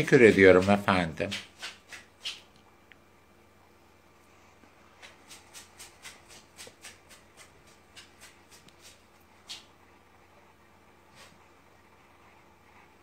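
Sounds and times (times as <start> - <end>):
short brushing strokes: 0.0 - 2.5, 4.3 - 9.8, 11.0 - 13.0.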